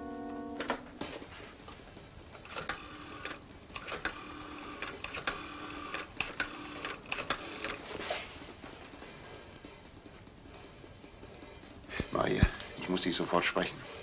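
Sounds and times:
rotary phone dial whirring: 2.4s - 8.0s.

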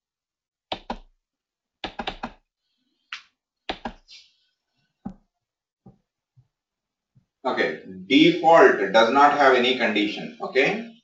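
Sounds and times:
keyboard and mouse clicks: 0.7s - 1.1s, 1.8s - 2.4s, 3.1s - 4.2s.

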